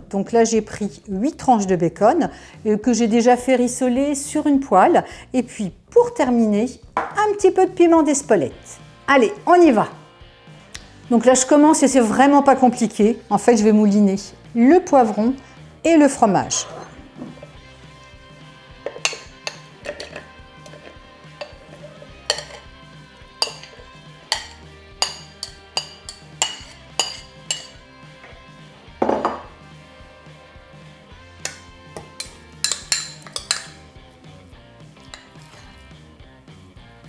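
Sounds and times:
background music: 0.0 - 37.0
metal spoon clinking on bowls: 18.8 - 22.8, 23.4 - 27.8, 31.4 - 33.9, 35.0 - 35.8.

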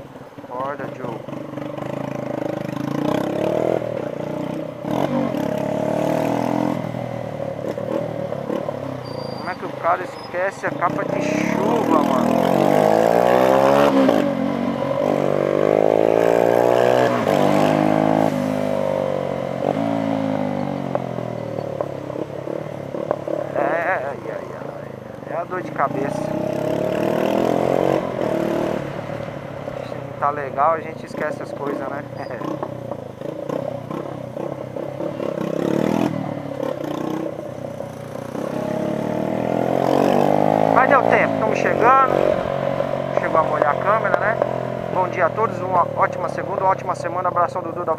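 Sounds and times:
motorcycle engine accelerating: 0.5 - 47.9.

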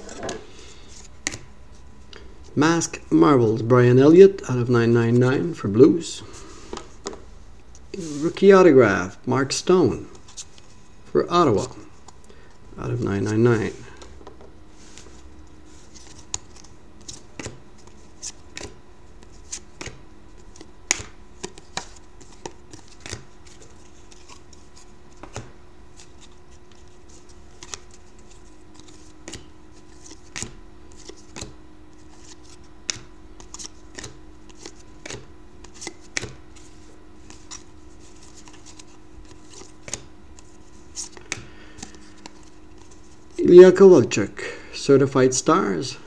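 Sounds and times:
trading cards flipping: 0.0 - 1.5, 11.5 - 43.4
faint steady hum: 0.0 - 46.0.

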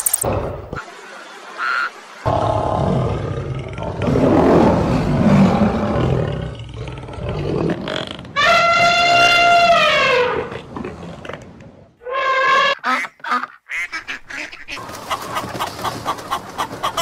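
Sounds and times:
lioness roaring: 2.3 - 8.1
elephant trumpeting: 8.4 - 10.5.

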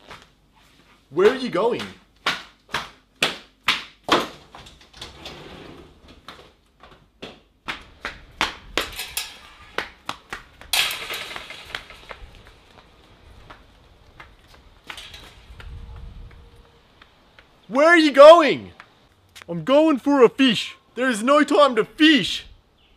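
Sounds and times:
scattered clicks and knocks: 8.4 - 12.6
noisy clatter: 10.6 - 12.6.

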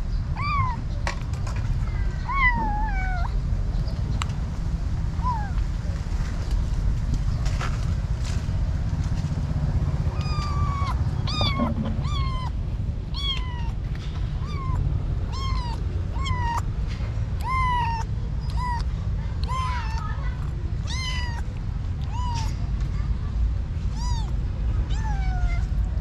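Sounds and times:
kitten meowing: 0.3 - 0.9, 2.2 - 3.4, 5.2 - 5.6, 10.1 - 13.8, 14.4 - 16.7, 17.4 - 20.1, 20.8 - 22.6, 23.9 - 25.7
low rumble: 1.4 - 19.6.

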